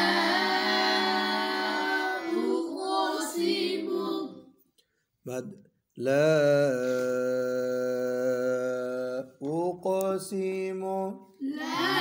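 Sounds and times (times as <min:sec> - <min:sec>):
person chanting recitation: 0:05.3 - 0:12.0.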